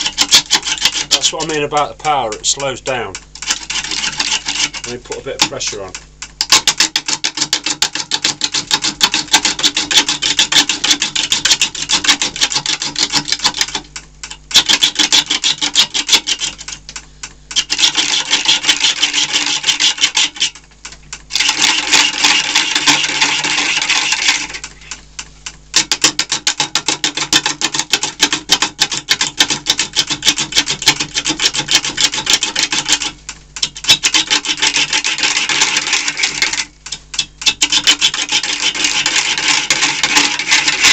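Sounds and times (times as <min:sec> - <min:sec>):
gouge cutting wood on lathe: 0:00.0 - 0:02.8, 0:03.5 - 0:05.6, 0:08.1 - 0:13.7, 0:14.5 - 0:16.6, 0:17.6 - 0:20.6, 0:21.4 - 0:24.6, 0:27.5 - 0:33.1, 0:33.9 - 0:36.6, 0:37.4 - 0:40.9.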